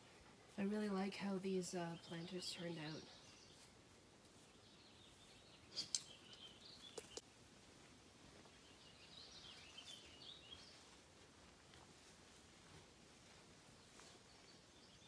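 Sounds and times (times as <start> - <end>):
faint birdsong chirping: 0.0 - 15.0
sharp clicks: 5.8 - 7.3.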